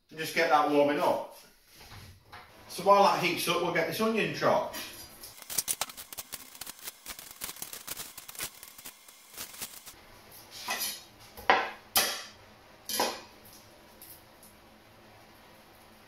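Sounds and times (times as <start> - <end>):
onion skin crackling: 5.2 - 10.0.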